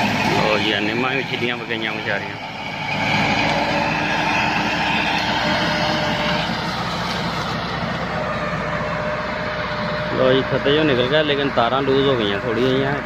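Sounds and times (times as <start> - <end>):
tractor diesel engine under load: 0.0 - 13.0.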